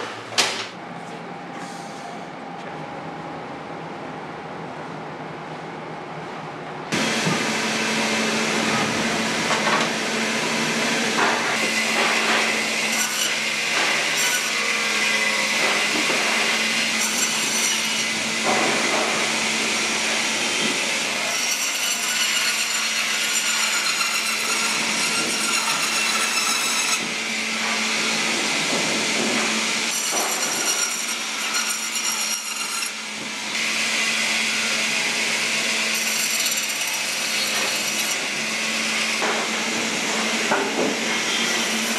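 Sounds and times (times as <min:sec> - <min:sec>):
band saw motor hum: 0:06.9 - 0:41.9
saw blade grinding frozen fish: 0:11.2 - 0:28.3, 0:29.4 - 0:39.6, 0:41.2 - 0:41.9.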